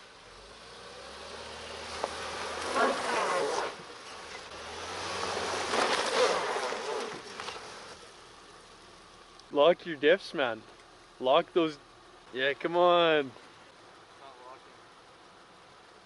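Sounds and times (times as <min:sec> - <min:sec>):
suv engine revving: 0:00.0 - 0:09.5.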